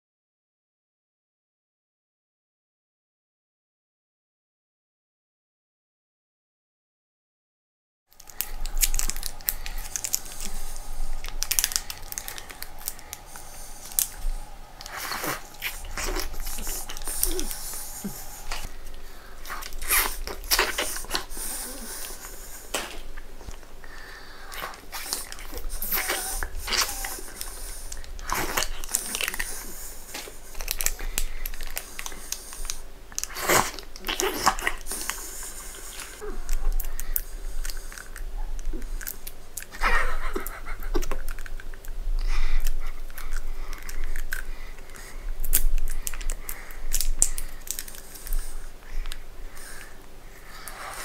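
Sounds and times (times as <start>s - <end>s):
plastic crinkling and clicking: 8.1s - 21.3s, 24.5s - 35.2s, 42.6s - 48.4s
chewing soft jelly: 8.1s - 51.0s.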